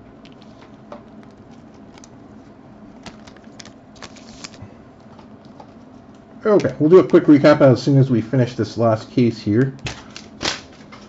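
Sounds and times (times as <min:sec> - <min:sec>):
low steady hum: 0:00.0 - 0:11.0
trading cards and foil rustling: 0:00.4 - 0:04.7.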